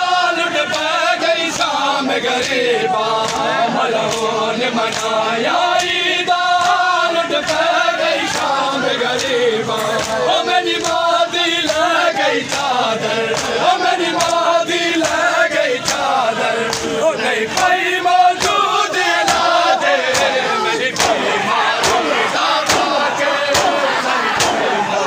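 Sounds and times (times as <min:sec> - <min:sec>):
lead reciter chanting: 0:00.0 - 0:25.0
men chanting in unison: 0:00.0 - 0:25.0
chest-beating slaps: 0:20.1 - 0:21.2, 0:21.8 - 0:24.8.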